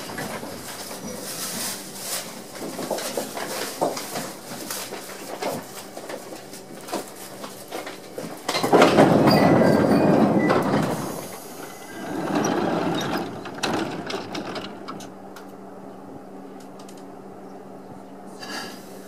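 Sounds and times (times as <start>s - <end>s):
electric train humming: 7.3s - 18.2s.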